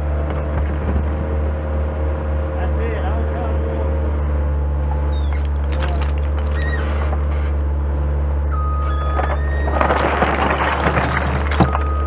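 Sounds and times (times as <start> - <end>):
loader engine running: 0.0 - 12.0
stones clattering from bucket: 5.4 - 7.3, 9.0 - 12.0.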